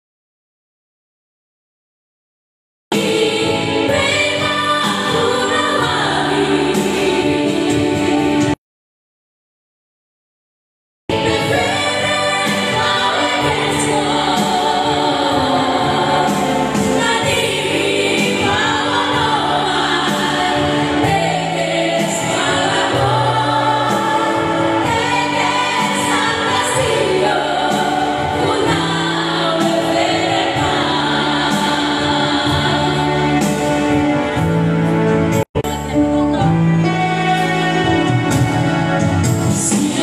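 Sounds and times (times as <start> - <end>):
women singing gospel song: 3.0 - 8.6, 11.1 - 33.9, 39.6 - 40.0.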